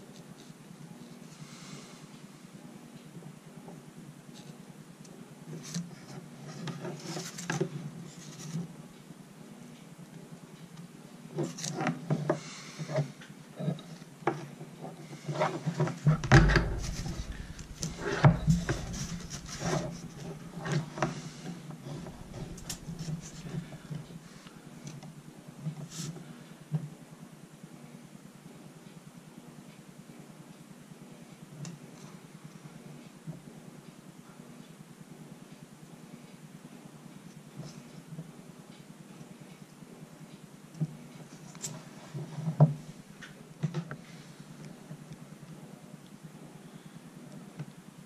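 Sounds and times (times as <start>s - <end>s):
clicks and knocks of handling: 15.8s - 21.2s, 21.9s - 24.1s
steady low hum: 16.0s - 25.4s
heavier bump: 16.1s - 20.7s, 21.9s - 24.0s.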